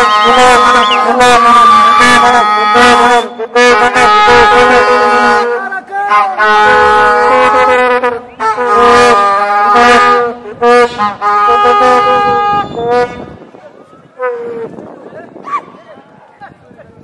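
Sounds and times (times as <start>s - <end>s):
vuvuzelas blowing: 0.0s - 13.4s.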